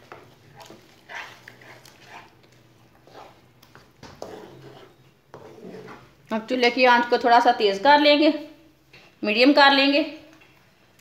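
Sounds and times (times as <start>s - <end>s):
wooden spoon stirring thick mix: 0.0s - 6.5s.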